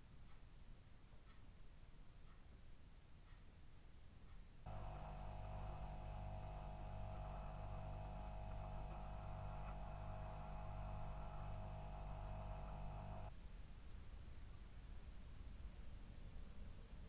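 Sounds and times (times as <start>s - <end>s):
low electrical hum: 0.0s - 17.0s
thin high whine: 4.7s - 13.3s.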